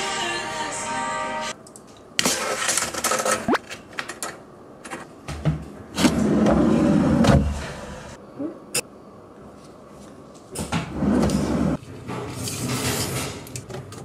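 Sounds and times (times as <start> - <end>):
rumbling slide in drawer: 6.0 - 8.1, 10.9 - 11.8.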